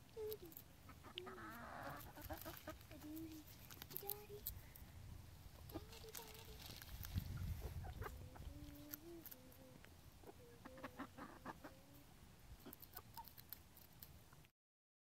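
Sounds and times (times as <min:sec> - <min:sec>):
hens calling softly: 0:07.2 - 0:13.3.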